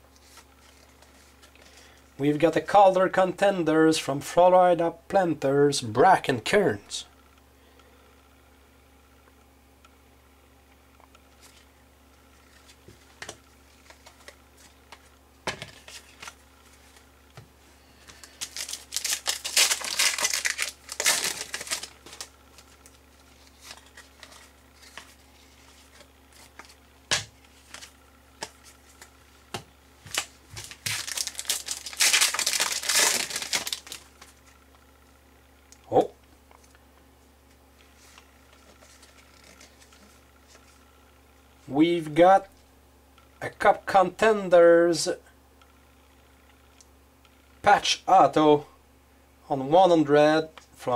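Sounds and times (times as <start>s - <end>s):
foil wrappers crinkling and tearing: 17.8s - 29.1s, 30.0s - 34.5s, 38.0s - 40.7s
cards clicking and tapping: 25.9s - 34.3s.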